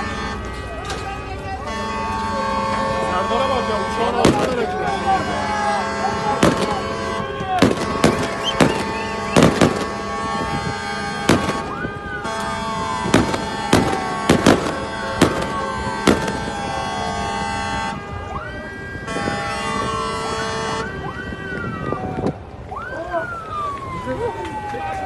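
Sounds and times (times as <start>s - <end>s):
boat horns: 0.0s - 22.1s
siren whoops: 4.0s - 25.0s
sharp bangs: 4.1s - 5.2s, 6.2s - 17.2s.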